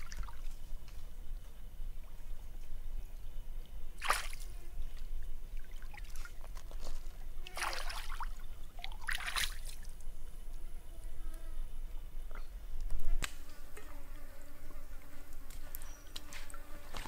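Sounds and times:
water splashing and dribbling: 0.0s - 0.6s, 4.0s - 10.0s.

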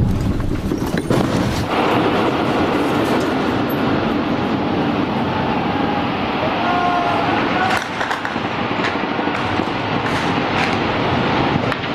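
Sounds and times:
bomb explosion blast: 0.0s - 11.9s
sharp crack: 7.6s - 11.9s.

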